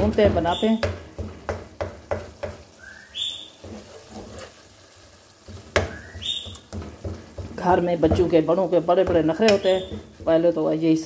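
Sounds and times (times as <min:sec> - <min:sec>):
faint sizzle: 0:00.0 - 0:11.0
short whistled call: 0:02.8 - 0:03.6
wooden spoon scraping a pot: 0:03.5 - 0:10.6.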